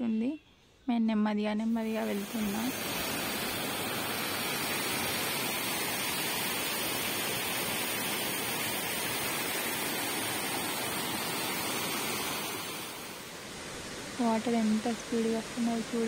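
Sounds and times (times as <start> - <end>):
waterfall rushing: 2.0 - 14.2.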